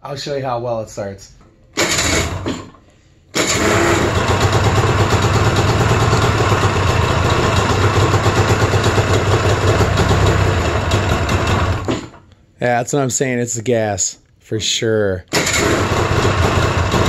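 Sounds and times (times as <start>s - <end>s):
snowmobile engine rough idle: 3.4s - 11.9s, 15.4s - 17.0s.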